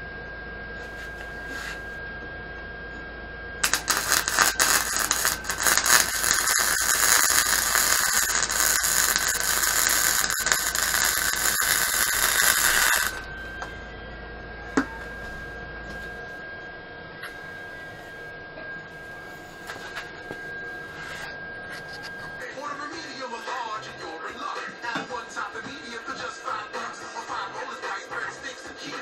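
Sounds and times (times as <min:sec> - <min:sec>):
faint high whine: 0:00.0 - 0:29.0
welder arc crackling and sizzling: 0:03.6 - 0:13.3.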